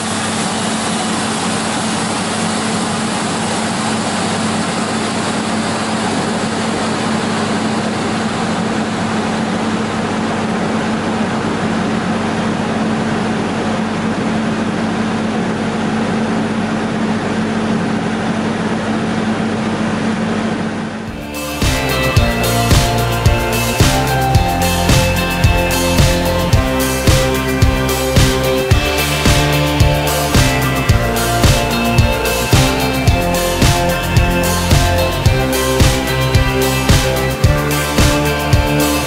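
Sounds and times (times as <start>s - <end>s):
multi-rip saw running: 21.0s - 39.0s
music: 21.1s - 39.0s.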